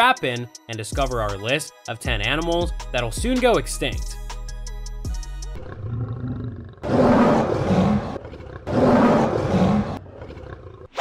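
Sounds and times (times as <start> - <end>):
lion roaring: 5.5 - 11.0.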